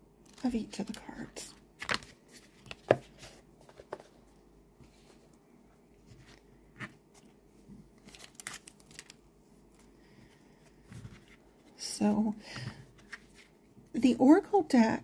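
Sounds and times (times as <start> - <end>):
cards tapping and rustling: 1.8 - 4.2.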